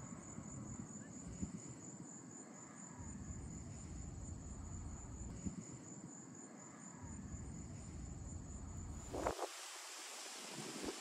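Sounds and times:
crickets chirping: 0.0s - 11.0s
wind rumble: 7.2s - 9.6s.

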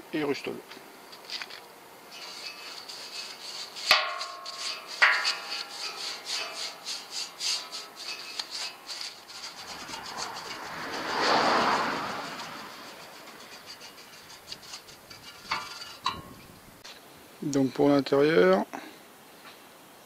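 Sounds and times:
scraping and rubbing: 1.1s - 16.6s
rush of noise: 9.2s - 14.0s.

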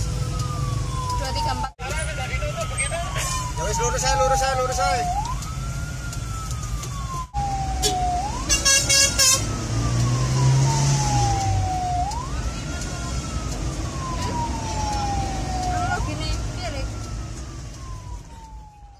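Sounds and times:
ambulance siren wailing: 0.0s - 18.9s
engine and road noise: 0.0s - 18.9s
vehicle horn blasts: 7.8s - 9.5s.

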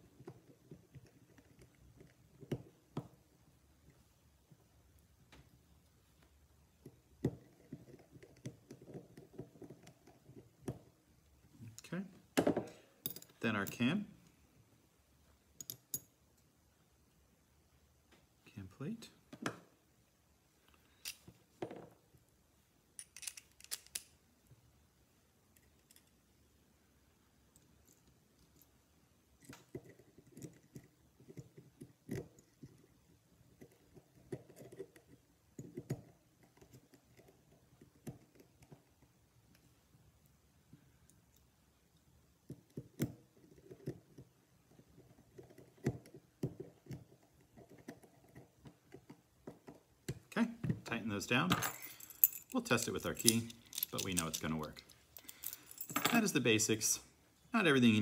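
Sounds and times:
small lock parts clicking: 23.0s - 24.2s, 25.5s - 26.2s, 51.7s - 56.0s.

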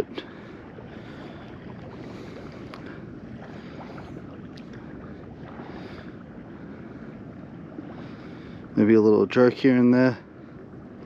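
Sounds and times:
water noise: 0.0s - 11.0s
wind buffeting microphone: 0.0s - 11.0s
faint ticks: 2.6s - 3.0s.

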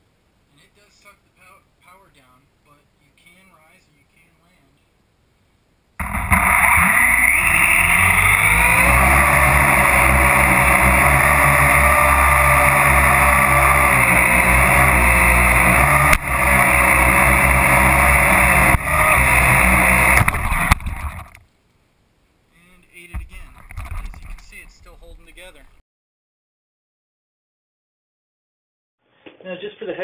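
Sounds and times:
drone rotors whirring: 6.0s - 21.4s.

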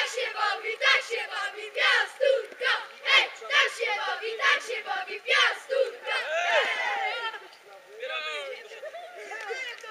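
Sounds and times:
boys chanting in unison: 0.0s - 7.2s.

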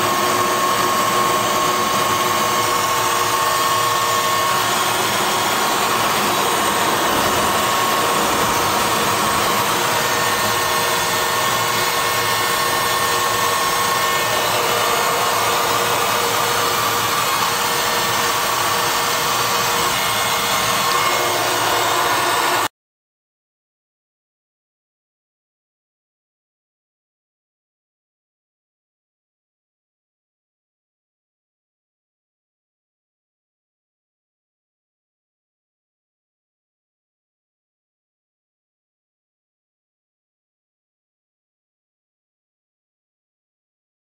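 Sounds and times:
jet cockpit rushing noise: 0.0s - 22.7s.

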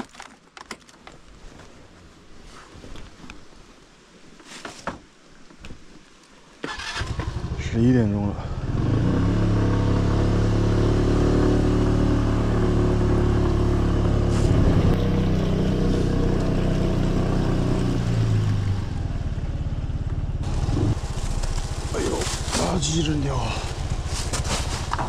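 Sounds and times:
small motorcycle engine running: 8.4s - 25.0s.

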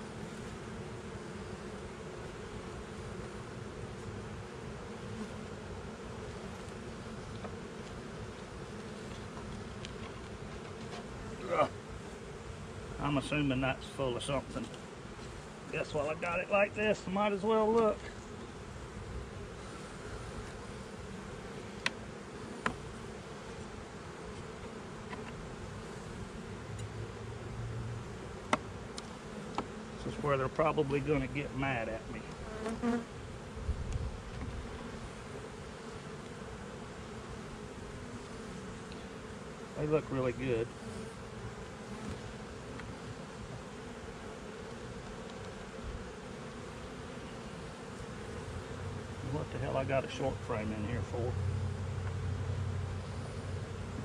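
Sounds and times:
honeybees buzzing: 0.0s - 54.0s
hive frames clicking: 28.4s - 29.8s, 44.6s - 45.8s.

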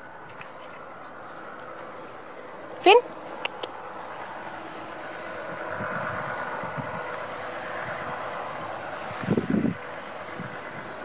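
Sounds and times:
steady mechanical hum: 0.0s - 11.0s
sharp clicks: 3.4s - 3.7s.

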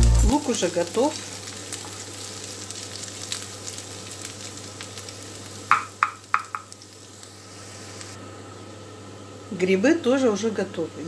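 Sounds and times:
onion sizzling in a frying pan: 0.0s - 10.5s
spatula tapping against pan: 5.7s - 6.7s.

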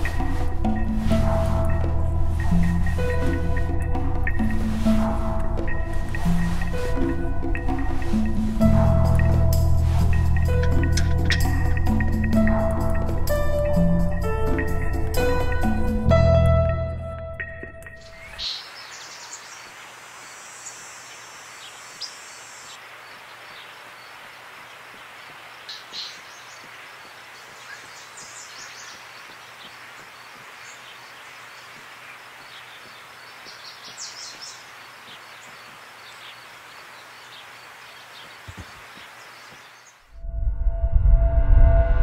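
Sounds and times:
music: 0.0s - 18.4s
steady hiss: 18.3s - 40.1s.

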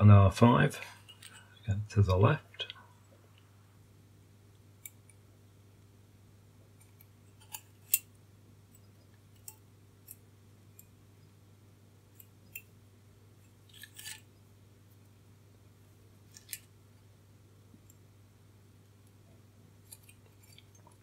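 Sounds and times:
light clicks of handled components: 1.0s - 1.6s.

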